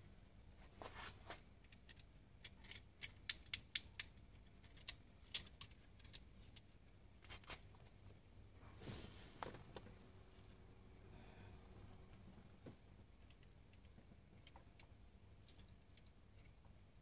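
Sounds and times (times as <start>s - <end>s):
faint clicks and light taps: 12.2s - 16.8s.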